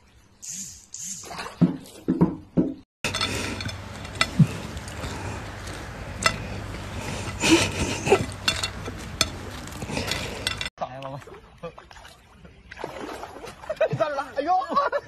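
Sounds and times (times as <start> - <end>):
steady low hum: 3.0 - 10.7
plate clinking: 7.2 - 10.7.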